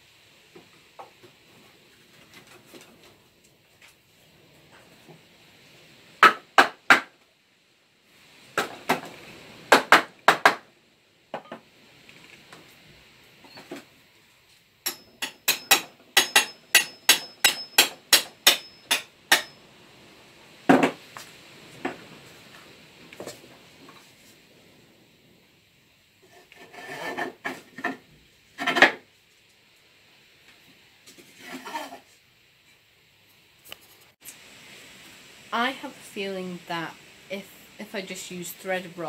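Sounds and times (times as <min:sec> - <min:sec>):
hammer tapping with metallic ring: 0:14.9 - 0:19.6.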